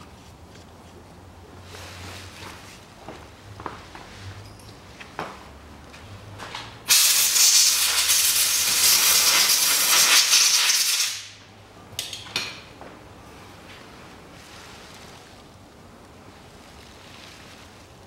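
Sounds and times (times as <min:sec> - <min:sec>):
pressurised spray hissing: 0:06.9 - 0:11.3.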